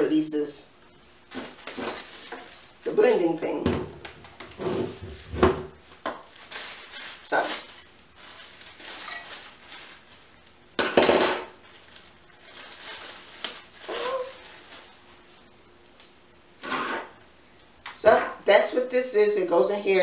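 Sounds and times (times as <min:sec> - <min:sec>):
plastic bag crinkling: 0:01.2 - 0:03.6, 0:04.4 - 0:10.8, 0:11.6 - 0:16.1.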